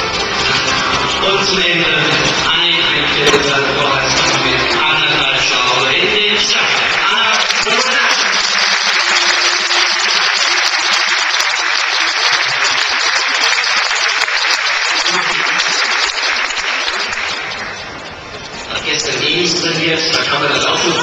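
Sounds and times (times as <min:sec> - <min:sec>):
music playing: 0:00.0 - 0:13.0
crowd applauding: 0:00.0 - 0:18.7.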